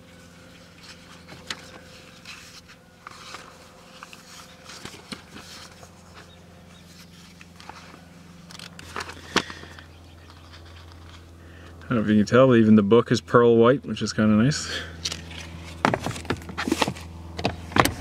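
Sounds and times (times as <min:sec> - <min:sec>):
paper pages rustling: 0:00.6 - 0:08.0.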